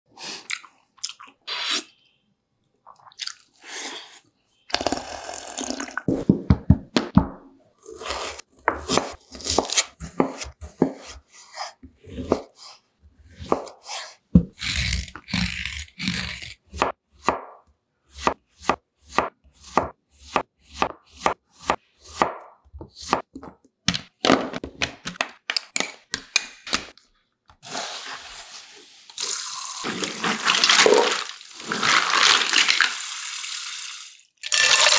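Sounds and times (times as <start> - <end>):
peeler scraping vegetable: 7.9 - 16.8
knife chopping on wooden board: 8.6 - 11.2, 16.7 - 24.7.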